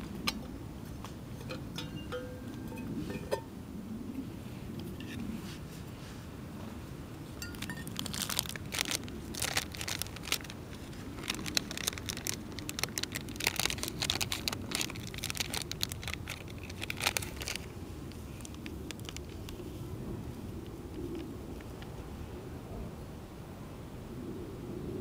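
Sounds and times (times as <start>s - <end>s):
low steady rumble: 0.0s - 25.0s
foil packet crinkling: 7.4s - 19.6s.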